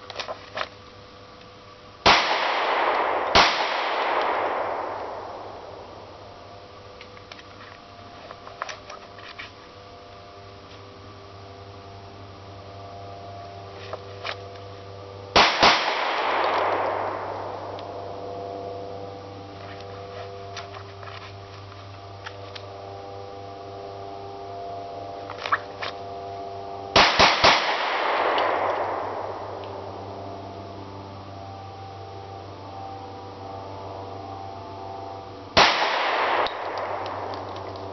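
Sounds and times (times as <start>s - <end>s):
pistol shots with echo: 2.1s - 5.8s, 15.4s - 17.8s, 27.0s - 29.4s, 35.6s - 37.9s.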